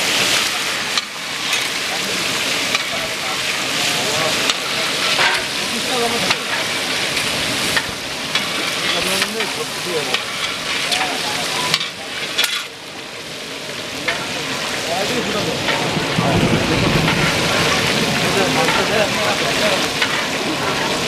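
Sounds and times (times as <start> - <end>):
chicken deep-frying sizzle: 0.0 - 21.0
metal spatula clinking and scraping: 4.4 - 5.6, 7.8 - 12.7.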